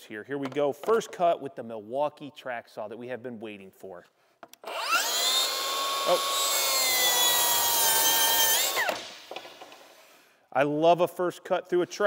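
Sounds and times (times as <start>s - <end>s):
track saw cutting plywood: 4.6s - 9.1s
saw blade spinning down: 4.7s - 9.3s.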